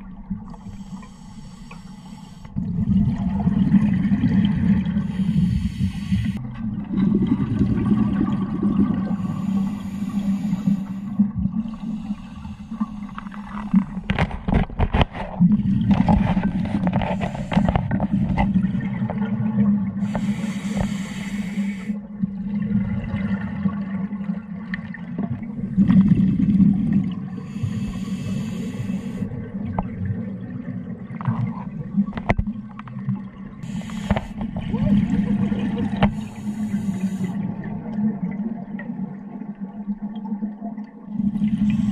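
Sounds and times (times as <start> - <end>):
regulator hissing inhalation: 0.6 - 2.5, 5.0 - 6.4, 9.2 - 13.4, 20.0 - 22.0, 27.5 - 29.2, 33.6 - 34.4, 36.0 - 37.4
gurgling exhaled bubbles: 2.6 - 21.4, 22.1 - 41.9.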